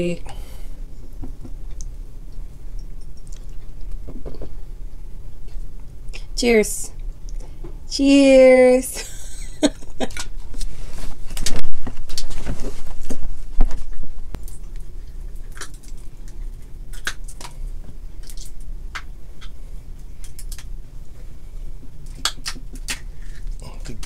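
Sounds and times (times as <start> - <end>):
chewing: 1.7 - 4.6, 14.4 - 18.6
crab shells cracking: 14.4 - 20.8, 22.0 - 24.0.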